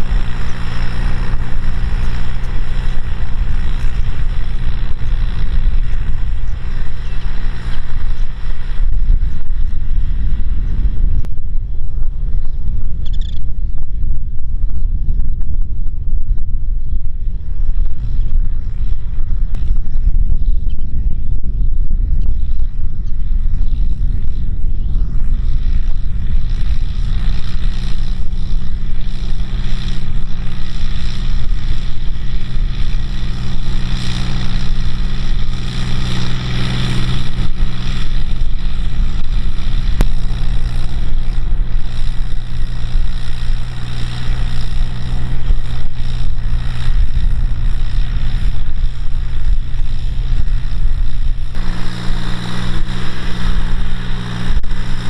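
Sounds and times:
tractor diesel engine under load: 0.0 - 11.3, 23.3 - 55.0.

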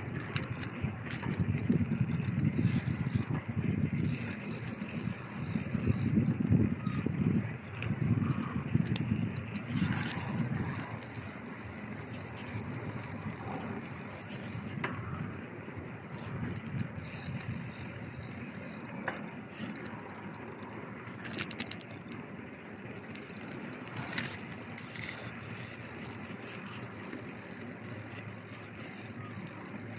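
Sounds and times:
bicycle tyres and wind rumble: 0.0 - 29.9
bike rattling: 0.0 - 29.9
rattling clicks: 7.8 - 15.2, 16.1 - 29.9.

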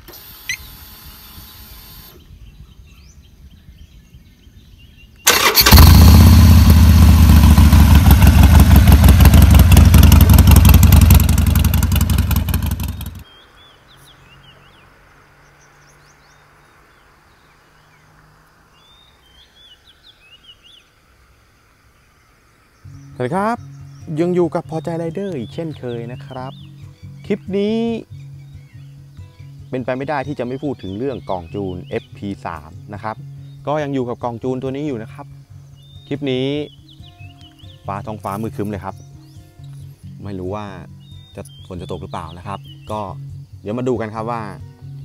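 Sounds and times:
faint bird chirps: 0.4 - 5.7, 7.5 - 45.0
motorcycle engine running: 5.3 - 13.2.

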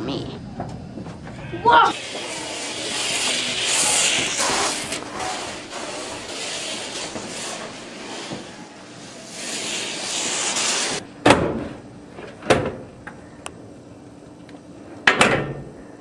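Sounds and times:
steady rushing hiss: 0.0 - 11.1.

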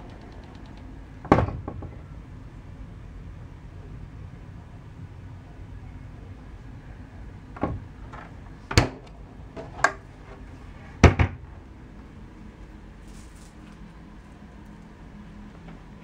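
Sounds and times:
cabinet door knocks and clunks: 1.2 - 2.0, 7.6 - 9.0, 11.0 - 11.4.

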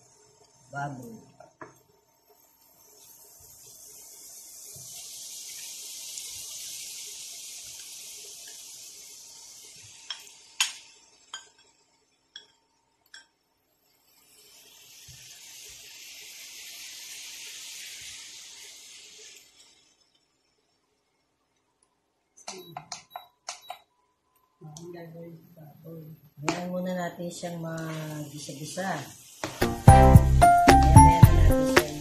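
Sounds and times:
meat sizzling in hot oil: 2.4 - 13.3, 13.9 - 20.6, 27.7 - 32.0.

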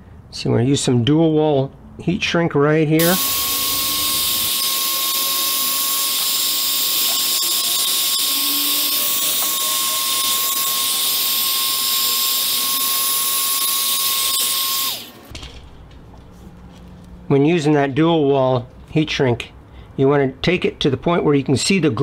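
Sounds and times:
heat gun running: 3.0 - 15.3.

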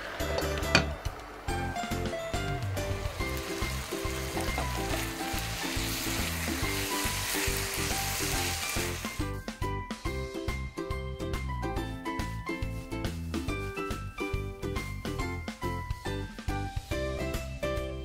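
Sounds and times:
food sizzling in a pan: 0.0 - 9.4
background music: 0.0 - 18.0.

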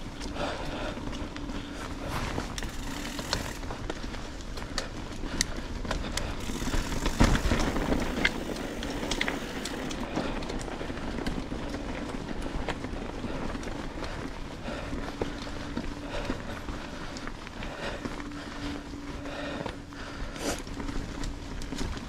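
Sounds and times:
tyres rumbling on trail: 0.0 - 22.0
bike rattling clicks: 0.1 - 14.3
bike jolt: 1.8 - 4.4, 5.0 - 10.6.

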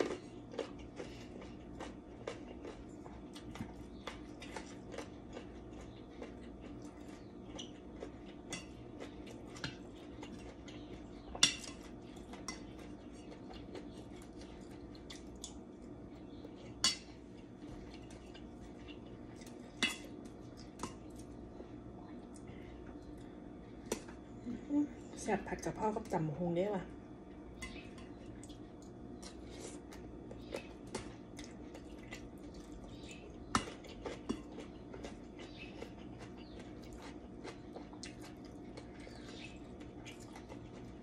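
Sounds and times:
low steady hum: 0.0 - 41.0.

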